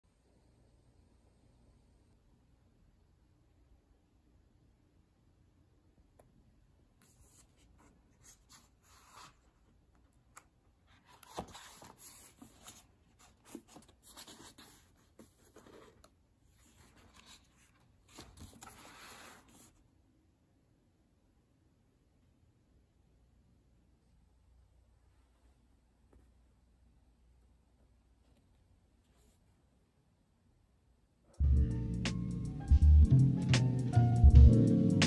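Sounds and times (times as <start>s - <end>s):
book pages rustling: 7.0s - 19.8s.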